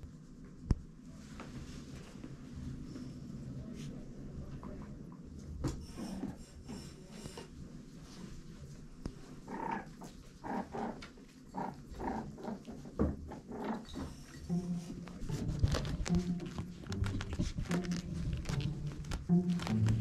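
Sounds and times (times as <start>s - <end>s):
fox kits growly calling: 9.4s - 13.9s.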